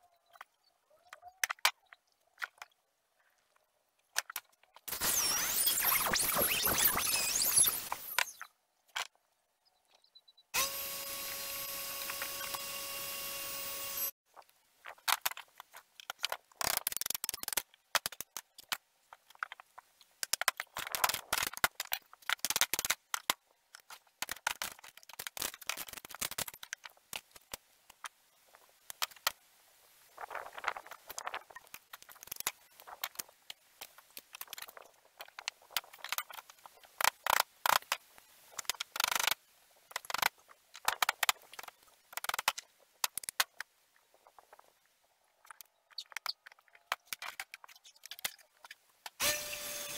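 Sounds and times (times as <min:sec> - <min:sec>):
circular saw cutting: 0:10.6 - 0:14.2, 0:49.2 - 0:49.9.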